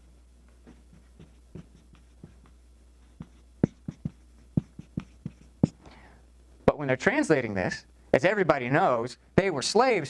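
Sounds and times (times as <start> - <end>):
marker squeaking on whiteboard: 0.6 - 5.8.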